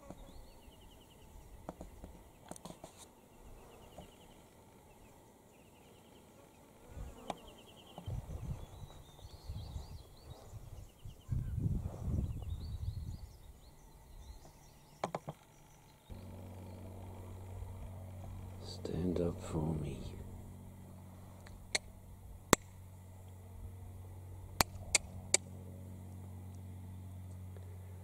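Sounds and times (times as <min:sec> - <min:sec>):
steady low hum: 0:03.1 - 0:28.0
low rumbling: 0:15.6 - 0:28.0.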